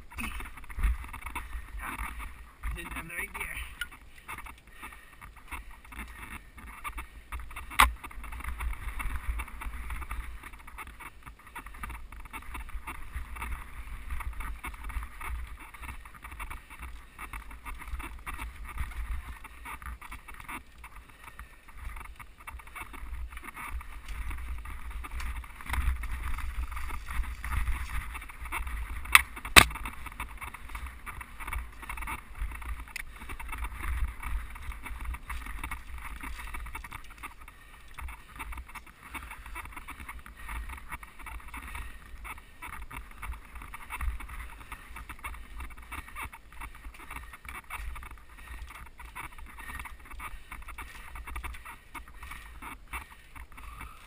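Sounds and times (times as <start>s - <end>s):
bike rattling: 0.0s - 54.0s
bike tyres on dirt: 0.0s - 54.0s
wind buffeting microphone: 21.4s - 53.8s.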